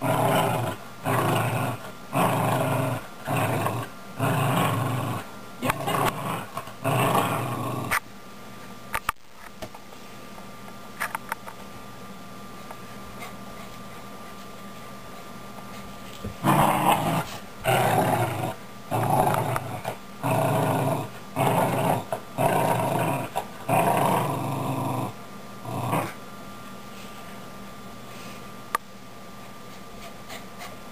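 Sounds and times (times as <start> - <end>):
small dog play-growling: 0.0 - 8.0, 16.4 - 26.2.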